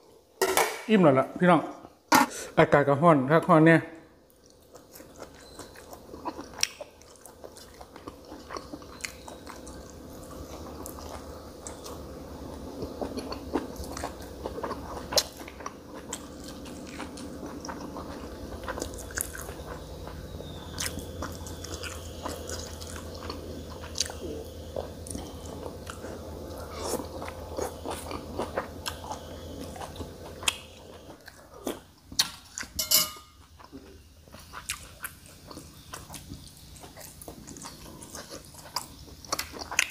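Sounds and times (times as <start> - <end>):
faint steady hum: 0.0 - 39.9
person chewing: 4.3 - 32.8, 33.4 - 39.9.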